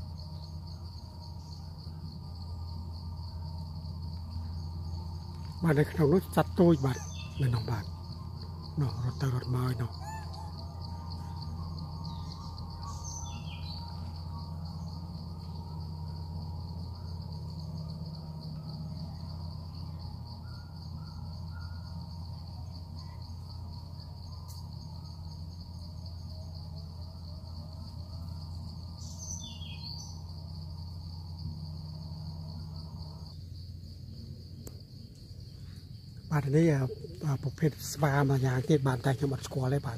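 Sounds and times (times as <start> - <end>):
high-pitched insect drone: 0.0 - 39.9
low steady hum: 0.0 - 39.9.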